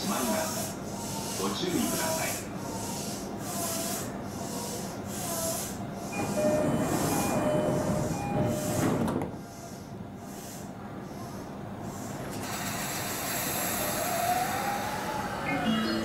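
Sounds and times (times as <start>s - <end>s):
stopped train humming: 0.0s - 16.0s
train doors sliding shut: 6.1s - 9.7s
two-note door chime: 6.2s - 8.8s.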